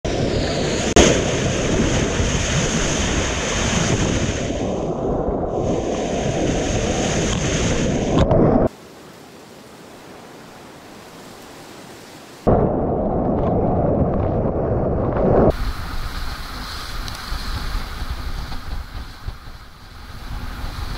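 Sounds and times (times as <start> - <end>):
water rushing along hull: 0.1 - 12.5, 15.5 - 20.9
faint steady hiss: 8.7 - 12.5
wind buffeting microphone: 12.4 - 20.9.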